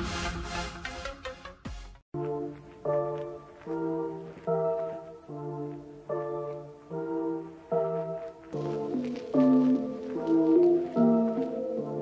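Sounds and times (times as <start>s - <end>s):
electronic music with pulsing beat: 0.0s - 2.0s.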